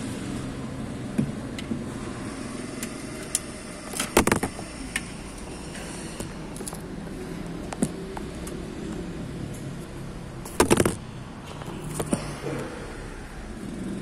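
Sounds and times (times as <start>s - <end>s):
phone falling and clattering: 4.0s - 4.6s, 10.5s - 11.0s.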